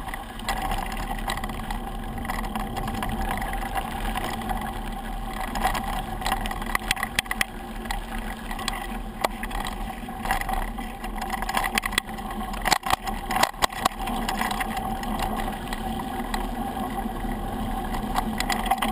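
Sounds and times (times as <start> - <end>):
bike rattling over bumps: 0.0 - 18.9
tyre and wind rush: 1.6 - 6.2.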